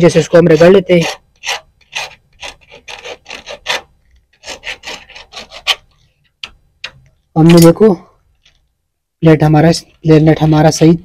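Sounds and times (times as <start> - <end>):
file rasping on copper pipe: 0.0 - 5.9.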